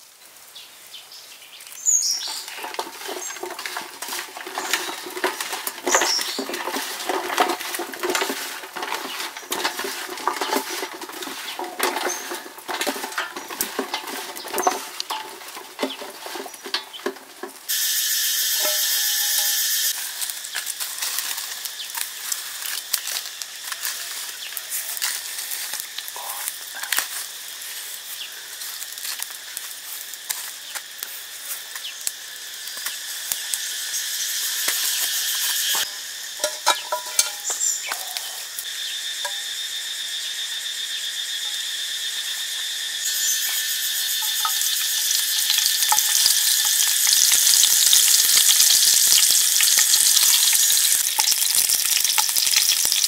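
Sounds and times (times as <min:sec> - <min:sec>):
charcoal crackling: 0:01.5 - 0:40.1, 0:40.7 - 0:53.0
vegetables knocking in metal tray: 0:02.3 - 0:17.7
loud high hiss: 0:17.6 - 0:36.5.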